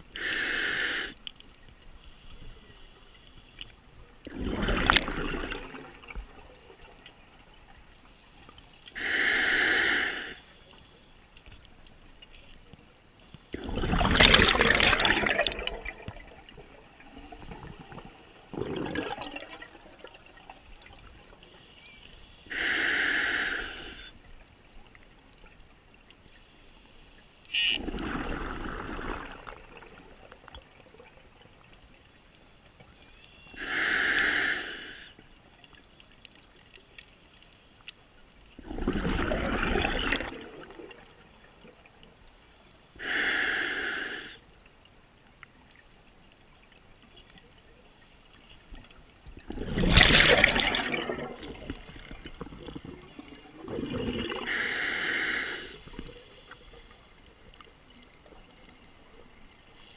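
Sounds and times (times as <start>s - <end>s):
scuba regulator inhalation hiss: 0.1s - 1.3s, 8.0s - 10.8s, 21.6s - 24.1s, 33.1s - 35.2s, 42.5s - 44.4s, 54.1s - 57.2s, 59.7s - 59.9s
exhaled bubbles rumbling: 4.3s - 7.0s, 13.5s - 21.0s, 27.8s - 31.2s, 38.6s - 41.2s, 49.3s - 54.6s.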